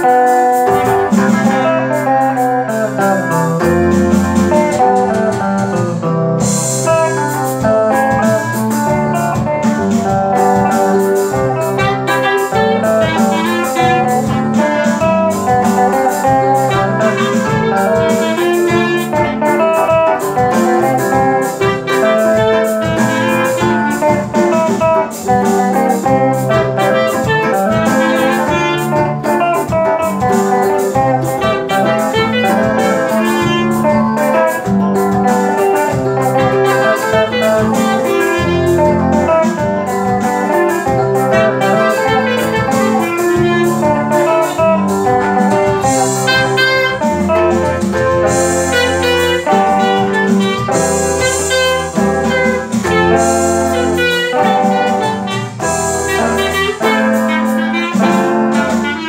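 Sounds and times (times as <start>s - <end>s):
clarinet melody: 0.0s - 59.0s
guitar: 0.0s - 59.0s
keyboard chords: 0.0s - 59.0s
bass line: 0.6s - 59.0s.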